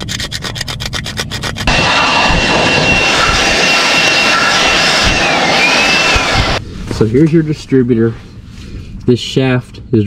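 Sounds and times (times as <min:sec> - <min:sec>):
sandpaper scraping metal: 0:00.0 - 0:01.8
thin whistle: 0:02.7 - 0:06.2.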